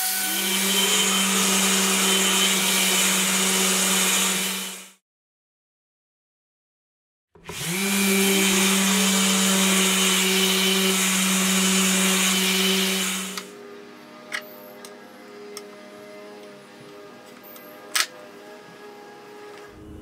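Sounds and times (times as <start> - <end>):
orbital sander sanding wood: 0.2 - 5.0, 7.5 - 13.6.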